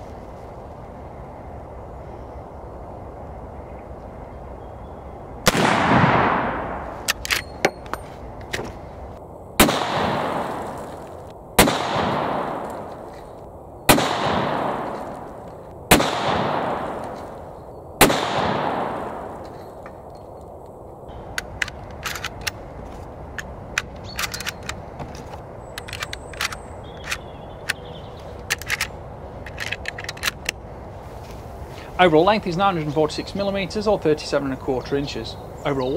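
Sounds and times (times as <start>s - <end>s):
rifle shots with echo: 5.5s - 6.9s, 9.6s - 10.9s, 11.6s - 13.0s, 13.9s - 17.3s, 18.0s - 19.4s
metallic clicks of rifle handling: 7.0s - 8.6s, 21.3s - 30.6s.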